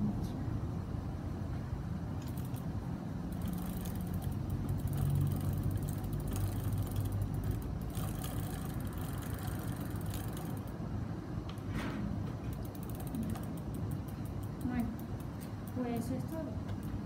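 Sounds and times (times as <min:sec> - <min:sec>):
bike chain whirring over sprockets: 0:02.2 - 0:10.8, 0:12.5 - 0:16.4
rag wiping chain: 0:03.3 - 0:10.7.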